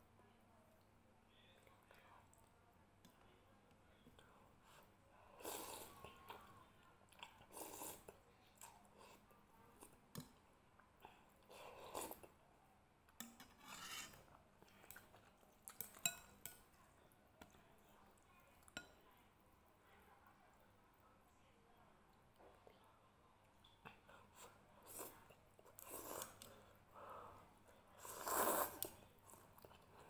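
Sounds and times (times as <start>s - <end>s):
noodles slurped: 28.0s - 29.4s.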